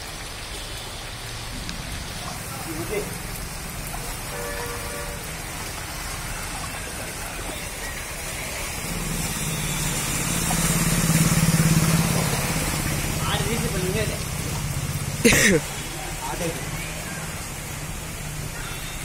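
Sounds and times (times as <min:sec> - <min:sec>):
rain falling on flooded street: 0:00.0 - 0:19.0
water hissing off wheels: 0:00.0 - 0:19.0
motorcycle engine passing: 0:08.8 - 0:15.0.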